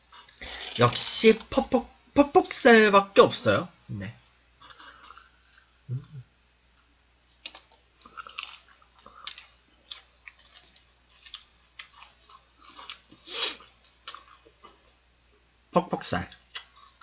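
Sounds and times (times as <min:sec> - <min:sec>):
chewing and biting food: 0:07.2 - 0:15.1, 0:16.3 - 0:17.0
wet mouth clicks and crunches: 0:07.3 - 0:14.6.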